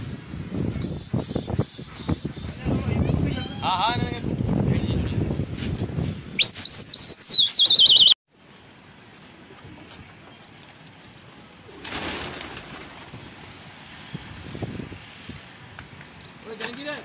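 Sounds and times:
shrill warbling whistle: 0:06.4 - 0:08.2
pigeon wings flapping: 0:11.7 - 0:13.6.

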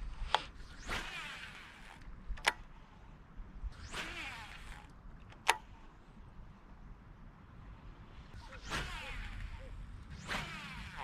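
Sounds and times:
fishing rod swishes: 0:00.1 - 0:02.0, 0:03.6 - 0:04.9, 0:08.4 - 0:11.0
reel clicking: 0:00.2 - 0:02.7, 0:03.8 - 0:05.7, 0:08.7 - 0:11.0.

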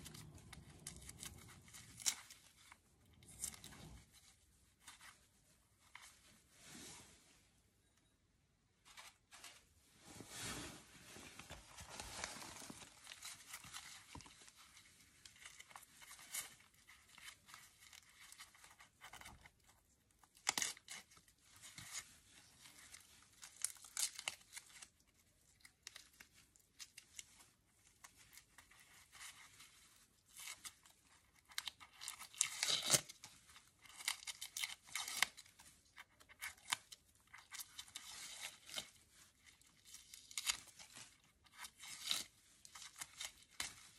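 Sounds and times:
dry bulb scales crackling and tearing: 0:15.4 - 0:21.2, 0:23.3 - 0:27.2, 0:31.3 - 0:43.9.

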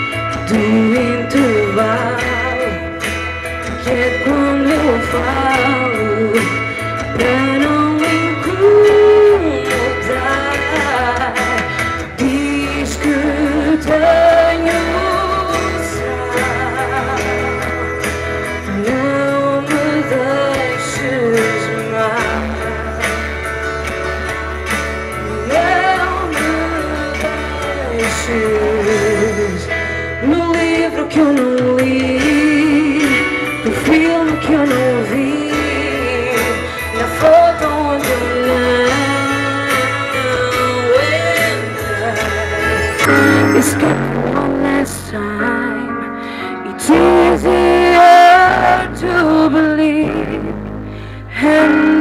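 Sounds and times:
woman singing into microphone: 0:00.0 - 0:23.1, 0:25.2 - 0:50.6, 0:51.3 - 0:52.0
instrumental accompaniment: 0:41.2 - 0:46.8.

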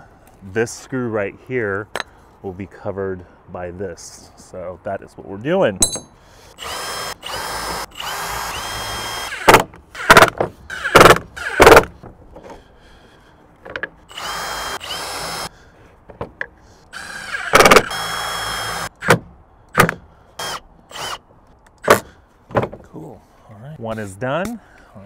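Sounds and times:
cordless drill driving screws: 0:06.6 - 0:11.9, 0:14.1 - 0:15.5, 0:16.9 - 0:19.2, 0:20.4 - 0:21.2.

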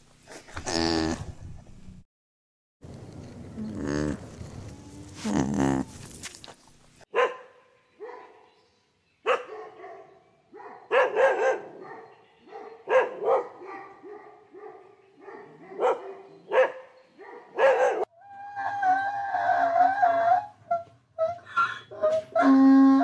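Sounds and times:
dog barking: 0:07.1 - 0:08.5, 0:09.2 - 0:18.1.

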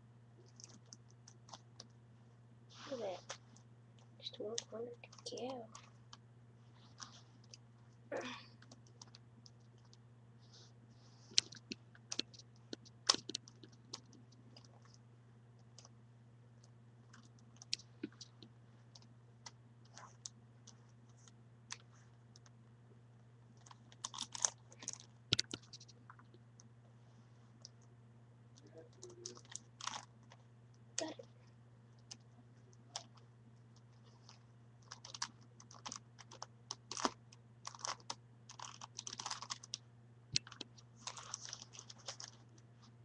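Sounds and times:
low steady hum: 0:00.0 - 0:43.0.

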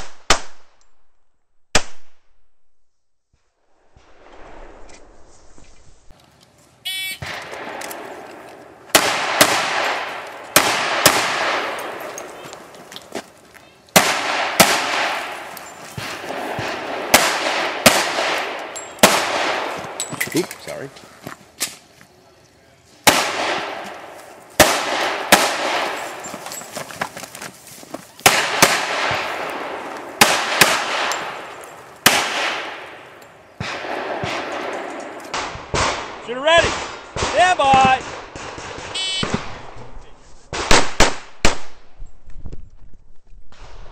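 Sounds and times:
shot timer beep: 0:06.9 - 0:07.2
pistol shots: 0:07.2 - 0:12.4, 0:13.9 - 0:20.1, 0:23.0 - 0:26.3, 0:28.2 - 0:39.8, 0:40.5 - 0:41.8.

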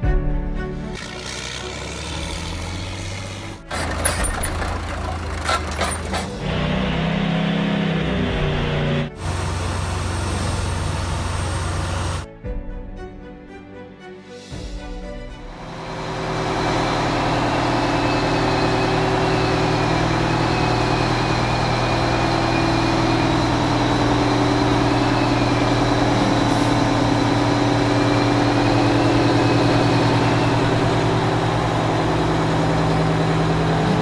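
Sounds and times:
truck diesel engine idling: 0:01.0 - 0:06.4, 0:15.7 - 0:34.0.

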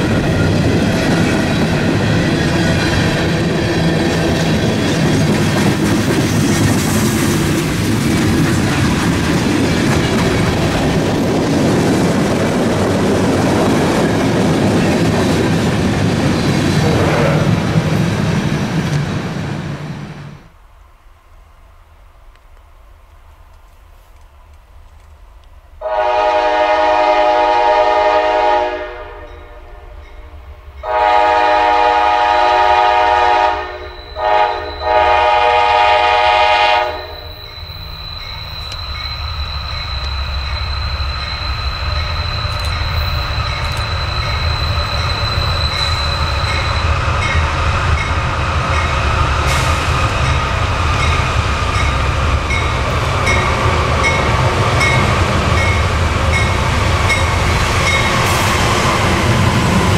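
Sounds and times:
train engine and wheel rumble: 0:00.0 - 0:59.9
locomotive air horn: 0:25.8 - 0:30.0, 0:30.8 - 0:37.4.

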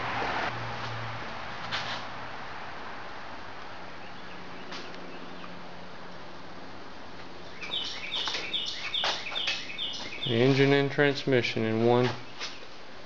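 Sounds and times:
bird chirping rapidly: 0:07.5 - 0:10.9.

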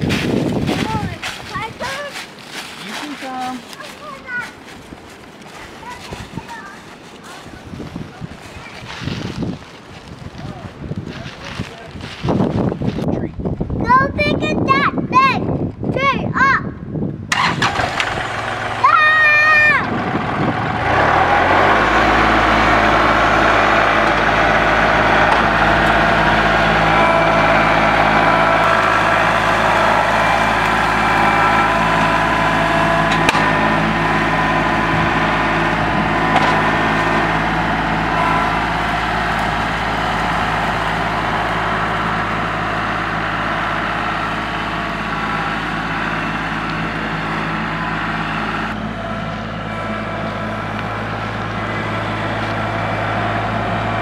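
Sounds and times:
tractor diesel engine running: 0:00.0 - 0:10.2, 0:17.2 - 0:54.0
sharp crack: 0:33.1 - 0:33.6.

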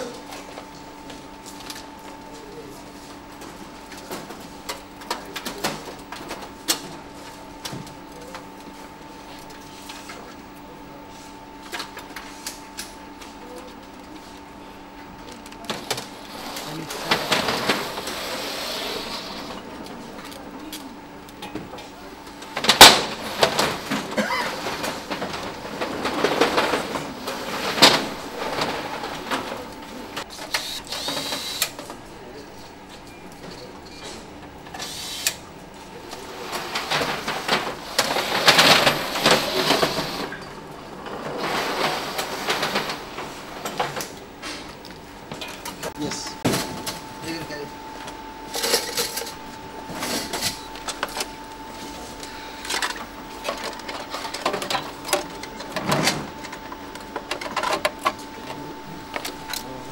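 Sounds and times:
metal chassis rattling on conveyor: 0:16.4 - 0:19.6, 0:22.6 - 0:29.8, 0:36.2 - 0:40.4.

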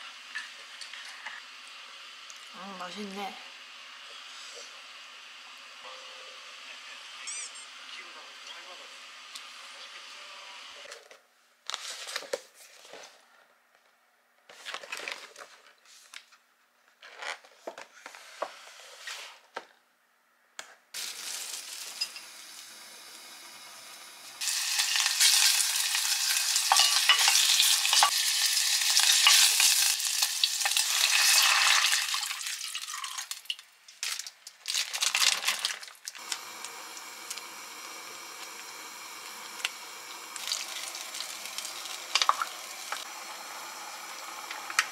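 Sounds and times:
meat sizzling in a pot: 0:21.0 - 0:33.6, 0:34.6 - 0:44.9
stew simmering: 0:35.0 - 0:44.9.

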